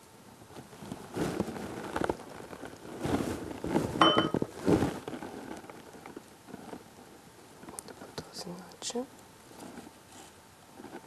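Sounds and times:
rustles and knocks on table: 3.0s - 5.1s
glass clink: 4.0s - 4.4s.

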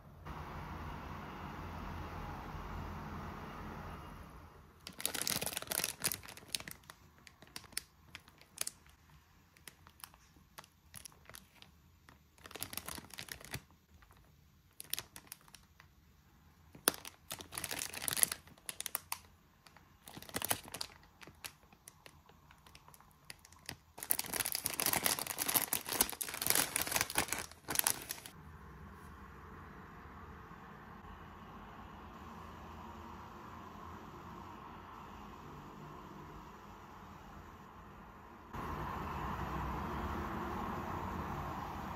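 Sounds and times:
plastic bag crinkling: 4.8s - 15.9s, 16.7s - 28.4s.

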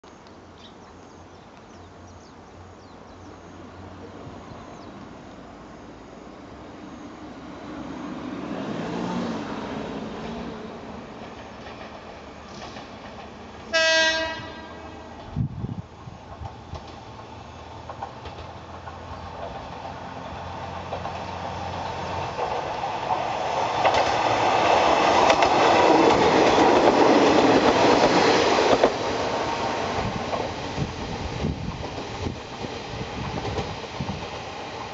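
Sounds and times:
diesel railcar engine droning: 0.4s - 34.9s
wheels clicking over rail joints: 11.1s - 13.7s, 16.2s - 29.4s.

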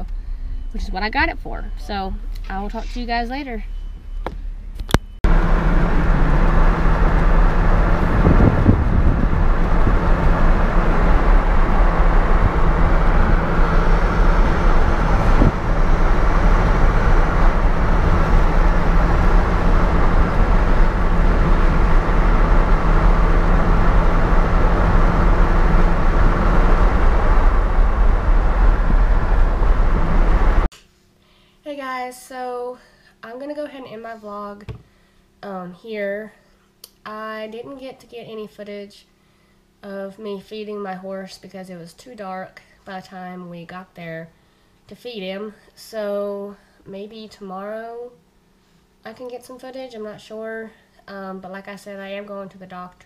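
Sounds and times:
car road and wind noise: 3.8s - 30.7s.

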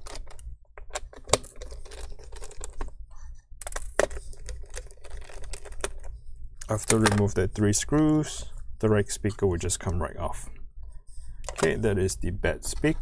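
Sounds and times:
plastic speaker being handled: 3.6s - 8.0s, 11.4s - 11.9s.

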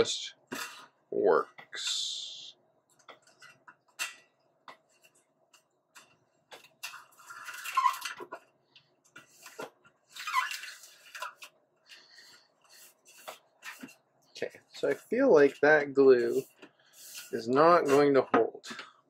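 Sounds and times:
hands rubbing led strip: 16.2s - 18.2s.

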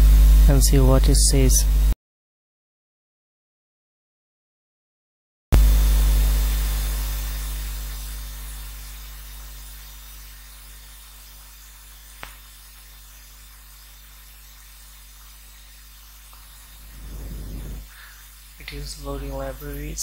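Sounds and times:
faint hum: 0.0s - 2.0s, 5.6s - 20.0s
steady hiss: 5.6s - 20.0s
sharp click: 12.2s - 12.5s
deep rumble: 17.0s - 17.9s.

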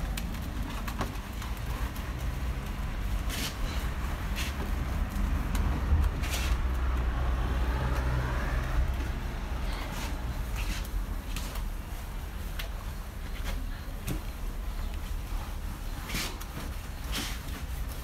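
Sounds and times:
wash mitts scrubbing car body: 0.0s - 18.0s
short swishing wipes: 9.9s - 18.0s.

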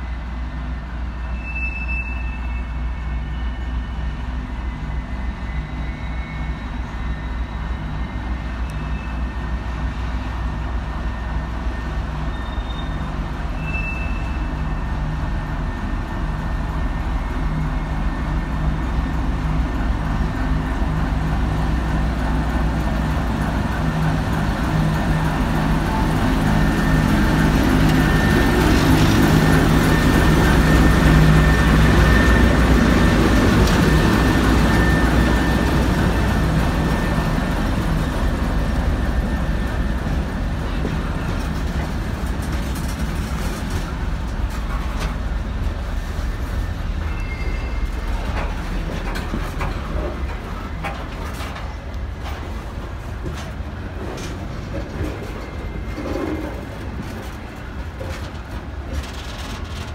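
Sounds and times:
diesel locomotive engine drone: 0.0s - 59.9s.

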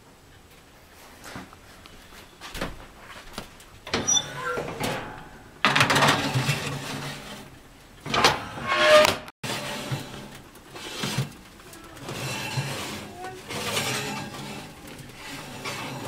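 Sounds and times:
metal pan scraping on oven rack: 3.9s - 16.0s.

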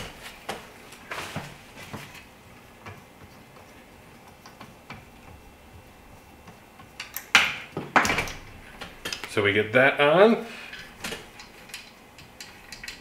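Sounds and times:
light clicks and taps of metal frame: 10.7s - 13.0s.

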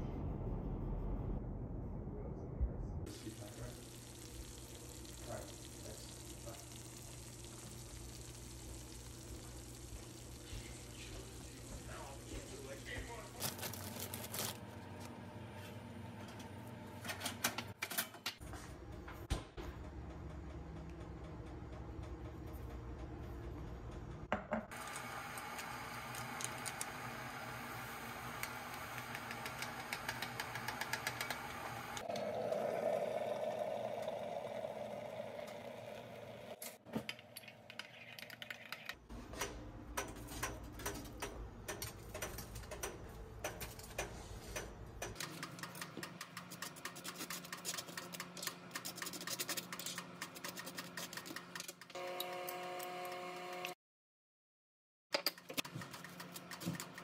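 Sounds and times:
hot water pouring into mug: 3.1s - 13.0s, 24.7s - 36.6s
electric kettle boiling: 3.1s - 13.4s, 24.7s - 36.6s.

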